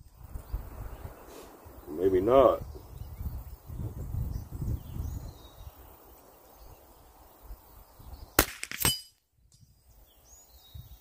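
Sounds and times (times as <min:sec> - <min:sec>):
rifle shots: 0:08.4 - 0:09.1.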